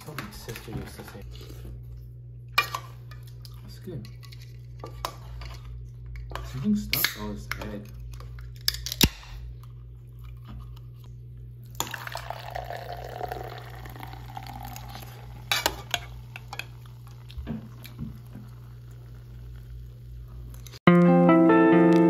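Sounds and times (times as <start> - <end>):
soda pouring and fizzing: 11.7 - 20.7.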